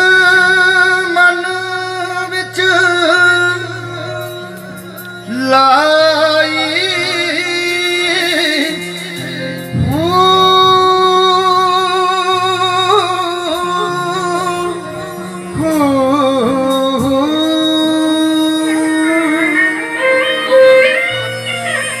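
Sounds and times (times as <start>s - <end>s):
man singing through pa system: 0.0s - 20.2s
sustained keyboard accompaniment: 0.0s - 22.0s.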